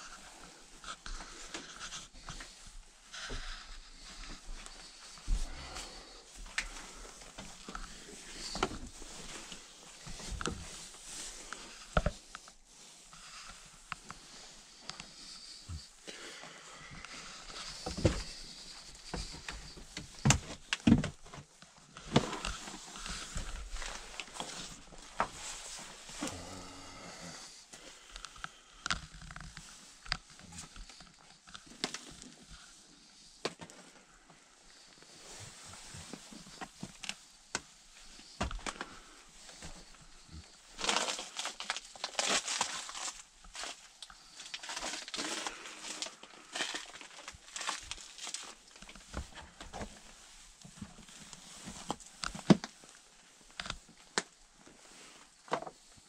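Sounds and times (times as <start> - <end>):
faint shuffling: 0.0 - 28.7.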